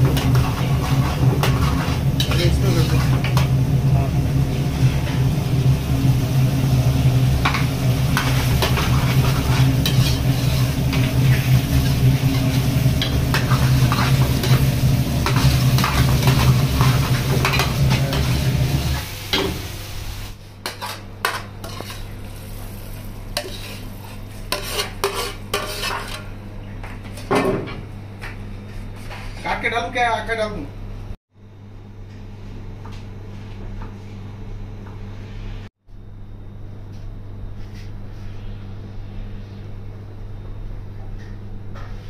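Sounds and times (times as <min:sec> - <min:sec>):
gravy sizzling in a frying pan: 0:00.0 - 0:26.2
steady low hum: 0:00.0 - 0:27.2.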